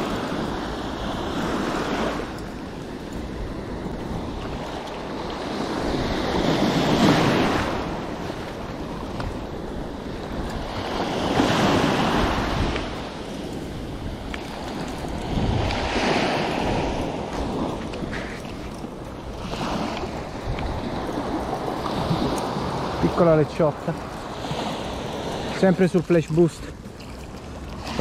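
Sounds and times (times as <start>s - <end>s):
waves washing up a beach: 0.0s - 28.0s
wind rumbling on microphone: 0.0s - 28.0s.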